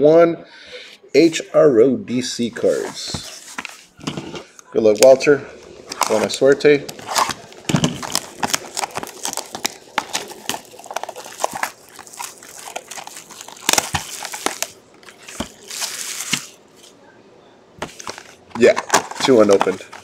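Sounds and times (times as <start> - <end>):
plastic film crinkling: 4.9 - 17.0, 17.8 - 20.0.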